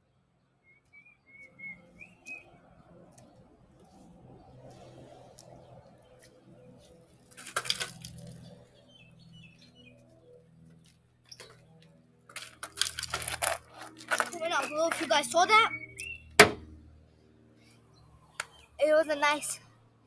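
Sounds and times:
bicycle rattling and scraping: 6.7s - 8.9s, 10.8s - 15.7s
bicycle clattering: 7.3s - 8.4s, 12.3s - 15.1s.

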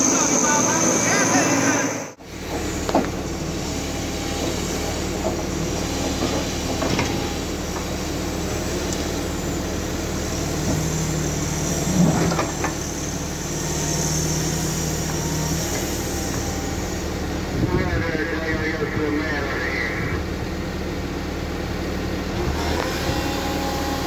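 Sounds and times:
higher drone: 0.0s - 6.3s
diesel engine running: 0.0s - 24.0s.

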